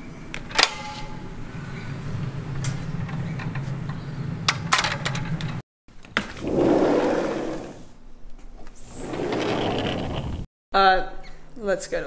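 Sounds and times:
gate clicking open and shut: 0:00.3 - 0:01.2, 0:02.6 - 0:06.5
sliding glass door rolling: 0:06.2 - 0:07.9, 0:08.8 - 0:10.5.

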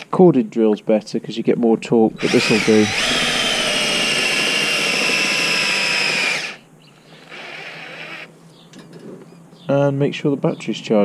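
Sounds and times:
cordless drill motor whine: 0:02.1 - 0:08.3
weak drill whir: 0:02.1 - 0:08.3.

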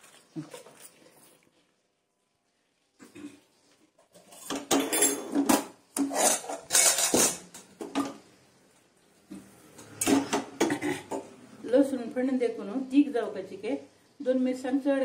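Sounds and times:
metal cookware clattering: 0:04.2 - 0:08.2.

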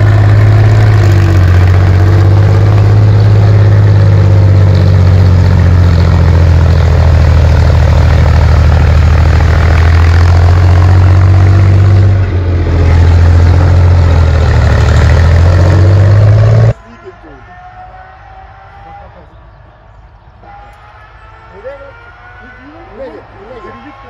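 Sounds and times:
tank engine droning: 0:00.0 - 0:16.8.

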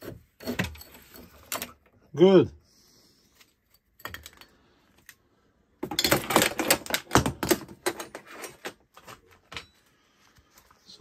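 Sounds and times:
metal tools clicking and clattering: 0:00.3 - 0:01.9, 0:03.6 - 0:04.6, 0:05.8 - 0:08.8.

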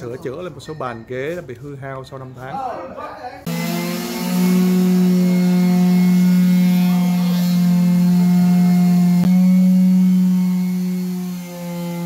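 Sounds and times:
orbital sanders buzzing: 0:03.5 - 0:12.0.

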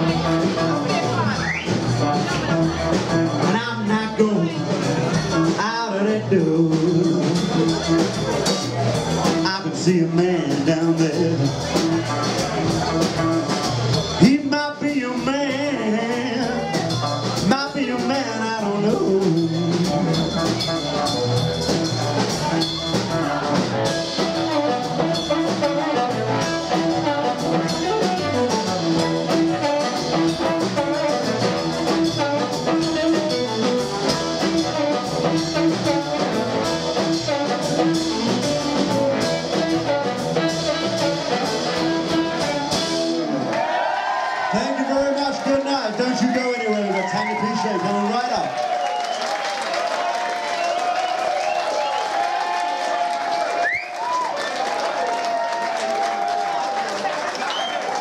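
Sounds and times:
double bass: 0:00.0 - 0:43.5
electric guitar: 0:00.0 - 0:43.5
steady drumbeat: 0:00.0 - 0:43.7.

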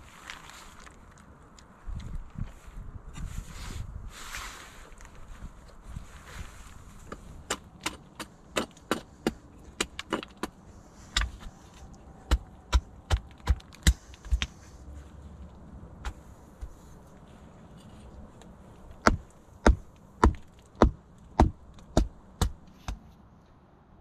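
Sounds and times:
wood chopping knocks: 0:19.0 - 0:23.0.

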